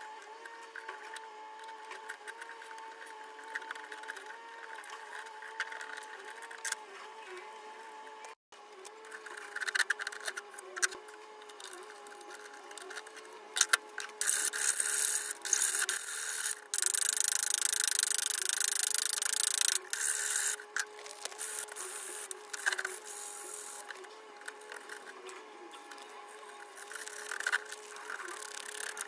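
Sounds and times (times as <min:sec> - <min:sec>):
sanding wooden knob: 0:09.1 - 0:25.2, 0:26.6 - 0:29.0.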